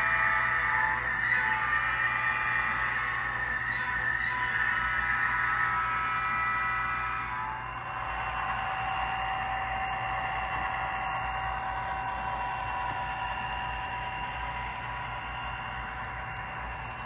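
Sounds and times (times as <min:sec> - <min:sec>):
model train electric whine: 0:00.0 - 0:17.0.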